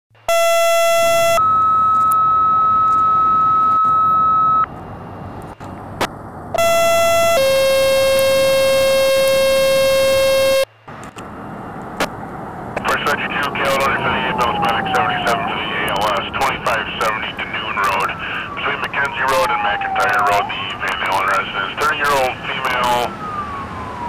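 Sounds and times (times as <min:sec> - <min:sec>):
two-tone paging tones: 0:00.3 - 0:04.7.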